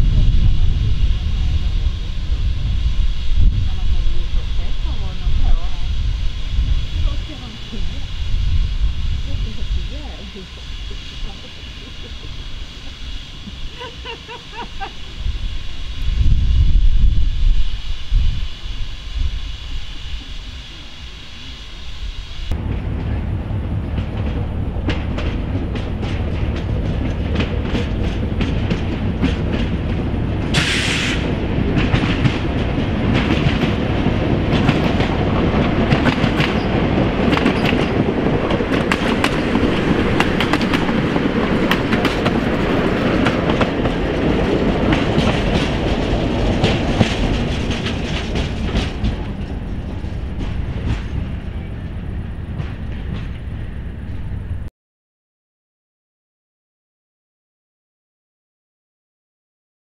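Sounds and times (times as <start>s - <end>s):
train wheels clacking on rails: 22.5s - 54.4s
short hiss: 30.5s - 31.4s.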